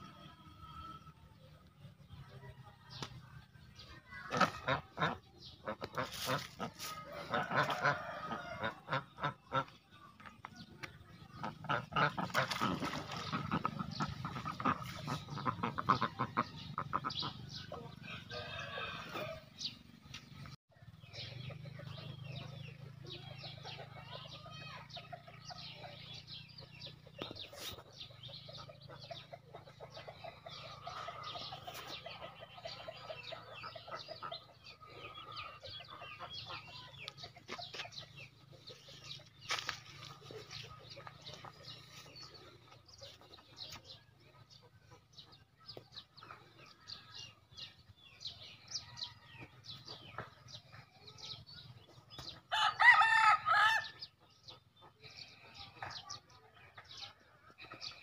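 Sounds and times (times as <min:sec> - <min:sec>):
rooster crowing: 0:18.0 - 0:19.4, 0:52.5 - 0:54.0
chickens clucking softly: 0:21.1 - 0:52.5.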